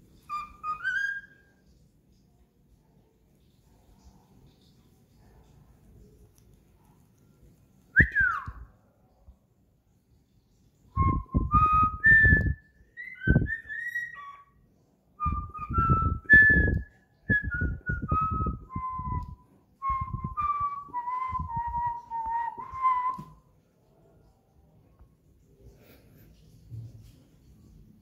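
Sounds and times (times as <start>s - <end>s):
cockatiel whistling a tune: 0.2s - 1.6s, 7.9s - 8.6s, 10.9s - 14.6s, 15.2s - 23.4s.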